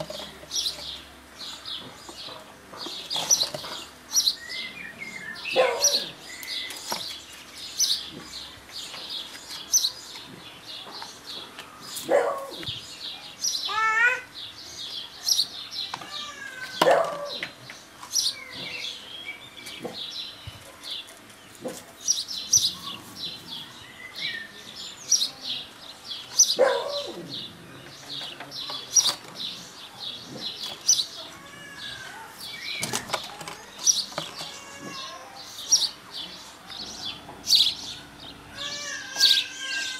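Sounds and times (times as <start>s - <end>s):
small birds chirping: 0.0s - 39.9s
loud falling bird calls: 30.4s - 39.9s.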